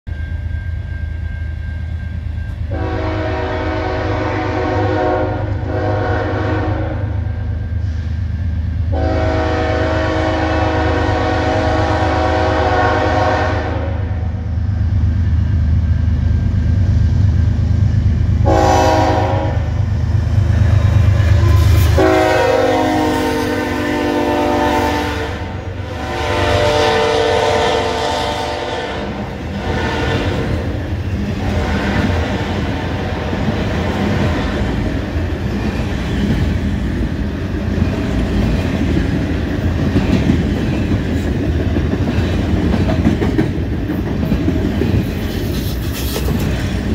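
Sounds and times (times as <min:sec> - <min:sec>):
diesel locomotive rumble: 0:00.1 - 0:46.9
train air horn blasts: 0:02.7 - 0:08.0, 0:08.9 - 0:14.4, 0:18.4 - 0:19.8, 0:21.2 - 0:34.5.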